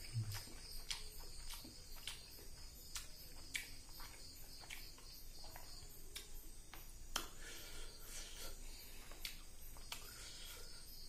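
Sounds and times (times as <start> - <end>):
wet mouth clicks: 0.0 - 6.3, 7.1 - 7.4, 9.1 - 10.2
fingers squishing food: 0.0 - 7.4, 9.0 - 10.2
insects chirping: 0.0 - 11.0.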